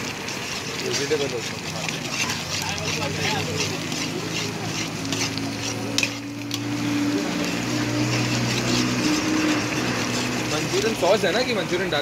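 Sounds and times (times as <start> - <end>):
food sizzling: 0.0 - 12.0
metal spatula scraping pan: 0.0 - 12.0.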